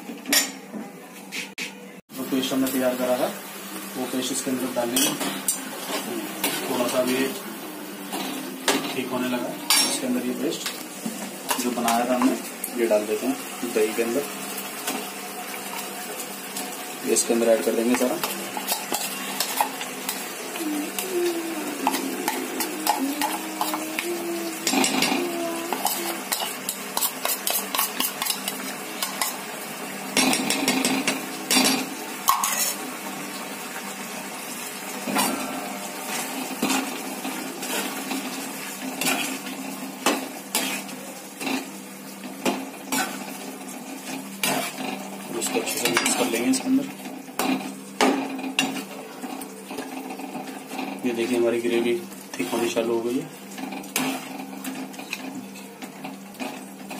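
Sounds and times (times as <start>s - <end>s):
spoon stirring thick gravy: 25.7s - 29.4s.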